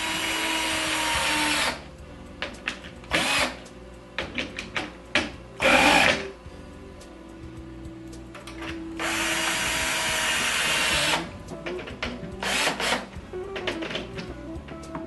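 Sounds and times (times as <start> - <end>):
cordless drill driving screws: 0.0 - 1.8, 3.1 - 3.6, 5.6 - 6.2, 9.0 - 11.3, 12.4 - 13.1.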